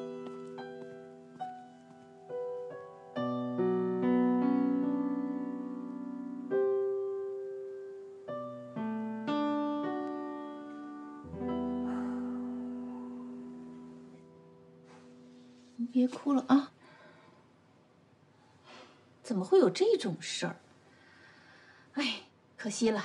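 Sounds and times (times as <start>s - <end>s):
soft piano music: 0.0s - 16.6s.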